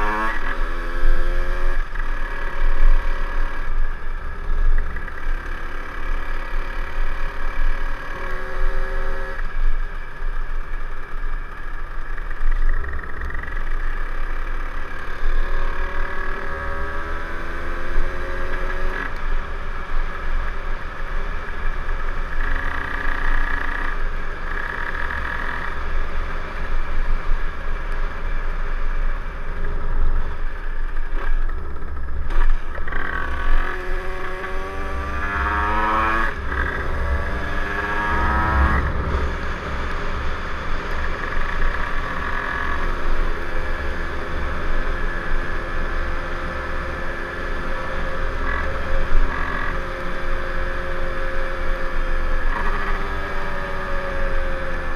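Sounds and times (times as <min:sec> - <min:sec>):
low wind rumble: 0:25.9 - 0:52.6
moped engine revving: 0:31.0 - 0:54.9.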